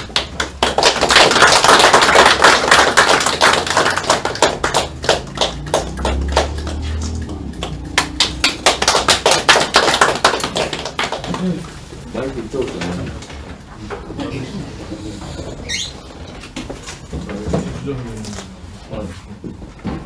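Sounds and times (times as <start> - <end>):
small group applauding: 0.0 - 13.3.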